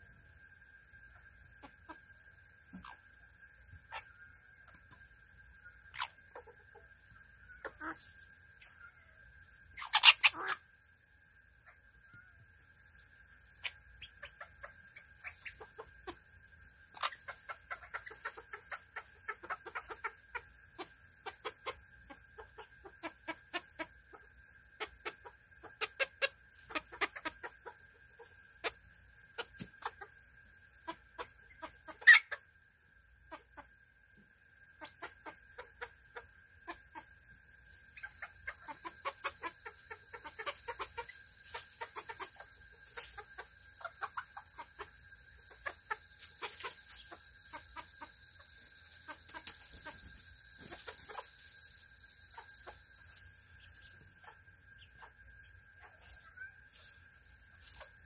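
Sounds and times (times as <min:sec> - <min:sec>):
chickens clucking softly: 0:00.0 - 0:10.8, 0:11.4 - 0:58.0
faint high whine: 0:00.0 - 0:58.0.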